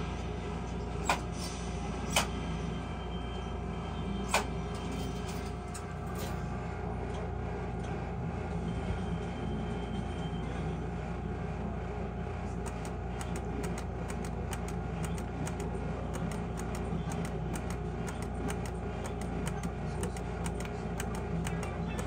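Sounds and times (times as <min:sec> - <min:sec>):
steady hum and tone: 0:00.0 - 0:22.0
slot machine clicking effects: 0:12.7 - 0:22.0.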